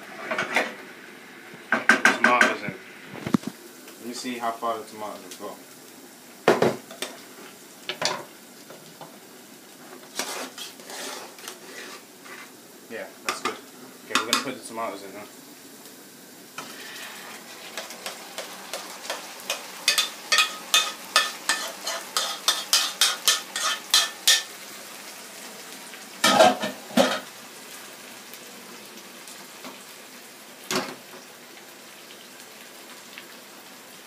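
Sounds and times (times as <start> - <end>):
food sizzling in hot oil: 0.0 - 34.0
cookware clanking: 19.1 - 24.5, 26.2 - 27.3.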